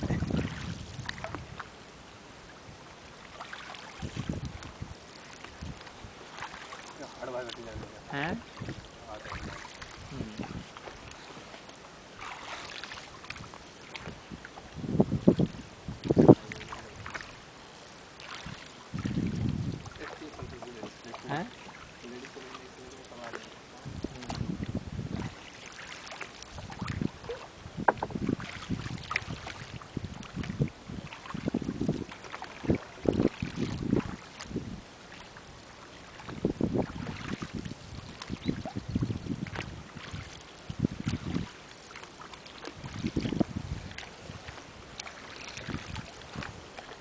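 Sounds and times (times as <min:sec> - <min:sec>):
wind buffeting microphone: 0:00.0 - 0:01.8, 0:03.9 - 0:06.3, 0:07.0 - 0:11.2, 0:13.2 - 0:17.4, 0:18.4 - 0:21.5, 0:23.8 - 0:25.4, 0:26.5 - 0:34.9, 0:36.2 - 0:41.6, 0:42.7 - 0:46.7
paddles dipping in water: 0:00.0 - 0:47.0
water splashes: 0:00.0 - 0:47.0
paddle knocks on boat: 0:27.3 - 0:28.3.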